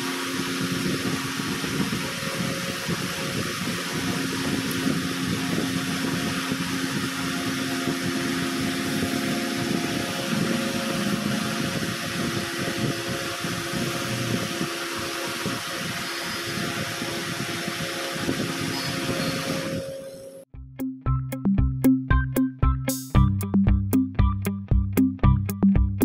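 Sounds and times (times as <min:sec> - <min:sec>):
electric fan running: 0:00.0 - 0:20.5.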